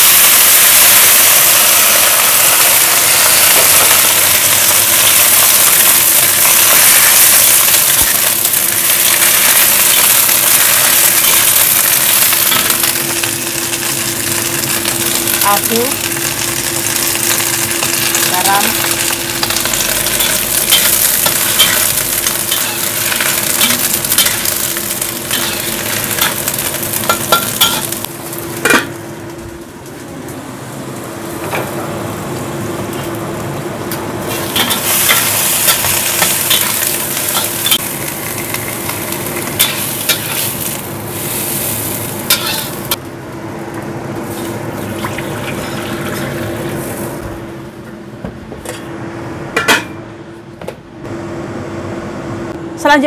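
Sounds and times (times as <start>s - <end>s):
vegetables sizzling in a wok: 0.0s - 43.1s, 44.2s - 47.7s
metal spatula scraping wok: 19.5s - 28.0s, 41.4s - 42.9s.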